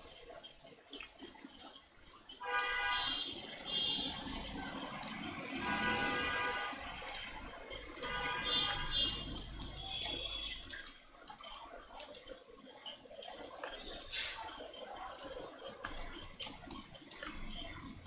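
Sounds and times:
computer mouse clicks: 0:00.0 - 0:00.2, 0:00.9 - 0:01.8, 0:02.5 - 0:02.8, 0:05.0 - 0:05.3, 0:07.0 - 0:08.2, 0:08.8 - 0:12.4, 0:13.1 - 0:17.8.

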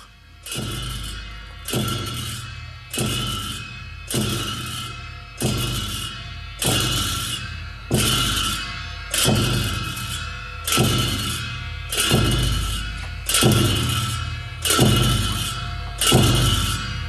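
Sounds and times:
cymbals ringing: 0:00.0 - 0:17.0
drum strikes: 0:00.4 - 0:17.0.

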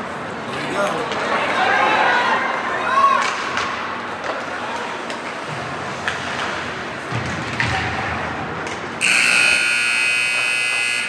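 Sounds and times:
crowd chatter: 0:00.0 - 0:09.6
scoreboard buzzer: 0:09.0 - 0:11.0.

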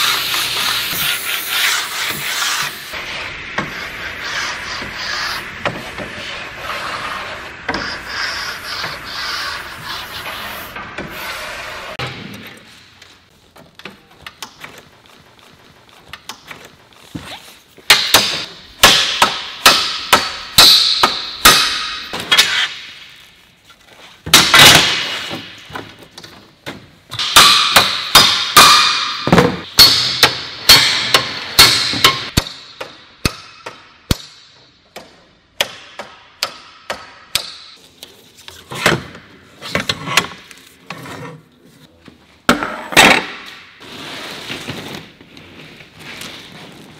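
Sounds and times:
hammer striking aluminium frame: 0:17.9 - 0:22.9, 0:27.2 - 0:37.8.

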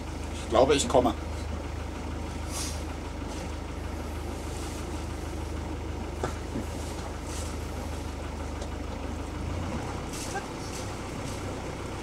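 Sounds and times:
motorboat engine idling: 0:00.0 - 0:12.0.

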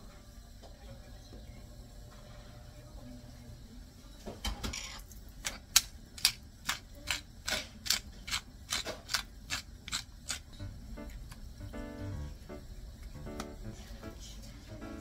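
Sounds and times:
pepper mill grinding: 0:05.4 - 0:11.4.

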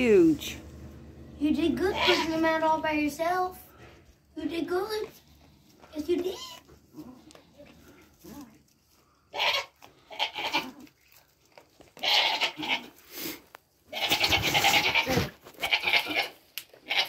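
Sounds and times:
goats bleating: 0:01.8 - 0:02.5, 0:09.3 - 0:10.9, 0:12.0 - 0:13.0, 0:13.9 - 0:17.0.

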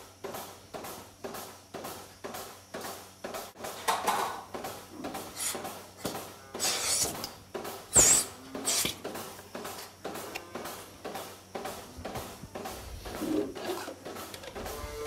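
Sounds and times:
milking machine pulsing: 0:04.6 - 0:15.0
milking cups rubbing and clattering: 0:05.2 - 0:07.3, 0:07.9 - 0:09.0, 0:11.9 - 0:15.0
sharp hiss: 0:05.2 - 0:15.0.

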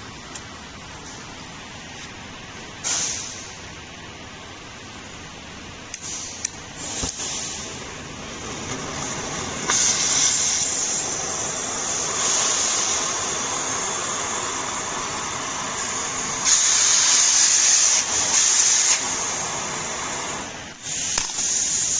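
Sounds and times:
cutting torch hissing: 0:06.0 - 0:21.9.

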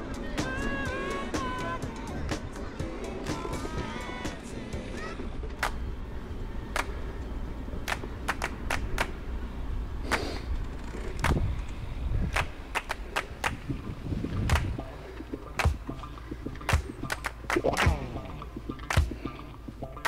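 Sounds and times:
tyres and wind rumble: 0:00.0 - 0:20.0
bike rattling clicks and knocks: 0:10.4 - 0:13.7.

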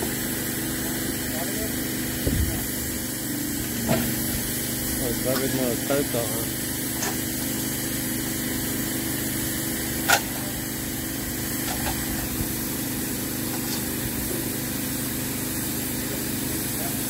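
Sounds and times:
small motor humming: 0:00.0 - 0:17.0.

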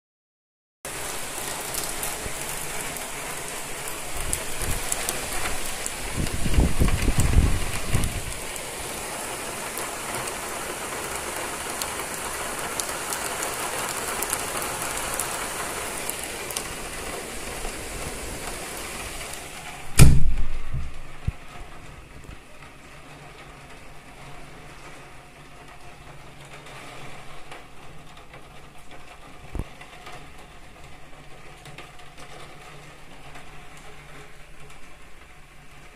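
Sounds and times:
heavy rain pouring: 0:00.9 - 0:35.9
loud bang with low rumble: 0:19.9 - 0:21.4.

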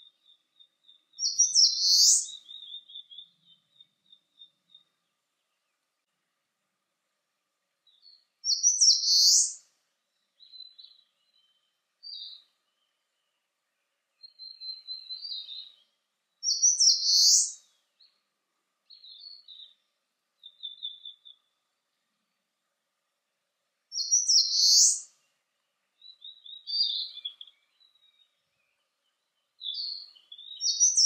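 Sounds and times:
bird singing loud high phrases: 0:00.0 - 0:05.7, 0:07.8 - 0:09.6, 0:10.4 - 0:13.4, 0:14.2 - 0:18.2, 0:18.9 - 0:21.6, 0:23.9 - 0:31.0
faint short high bird calls: 0:01.2 - 0:04.9, 0:08.0 - 0:09.6, 0:16.4 - 0:17.7, 0:23.9 - 0:25.1, 0:26.0 - 0:28.3.

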